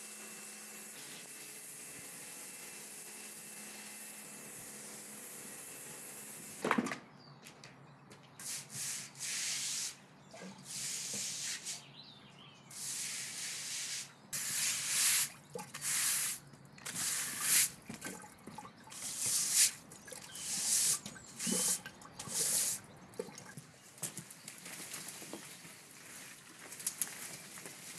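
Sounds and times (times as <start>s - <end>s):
brush scrubbing wet paving: 8.4s - 11.9s, 12.7s - 22.9s
pressure washer jet hissing: 10.7s - 11.8s, 12.7s - 16.4s, 17.0s - 17.7s, 20.4s - 22.8s.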